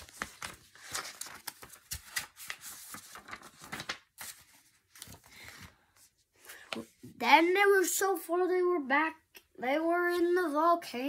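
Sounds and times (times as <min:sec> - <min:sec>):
book pages rustling and flipping: 0:00.0 - 0:07.2.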